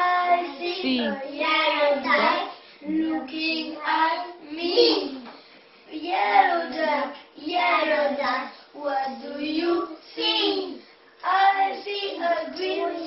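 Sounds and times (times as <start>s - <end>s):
young children singing: 5.9s - 13.0s.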